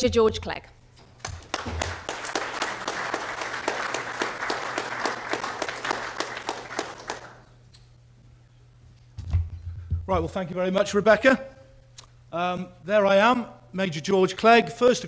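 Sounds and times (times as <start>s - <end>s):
audience applauding: 1.2s - 7.5s.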